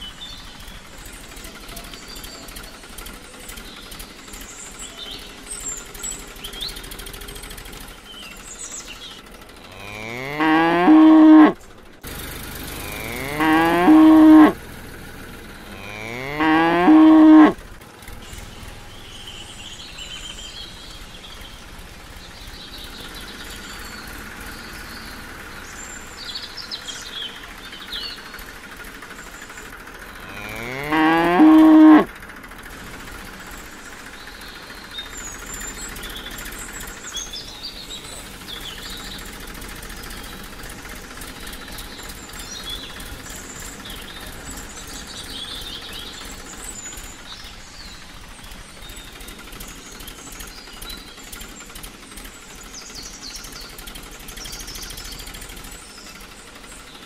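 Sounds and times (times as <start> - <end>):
cow mooing: 9.7 - 11.6, 12.8 - 14.6, 15.6 - 17.6, 30.2 - 32.1.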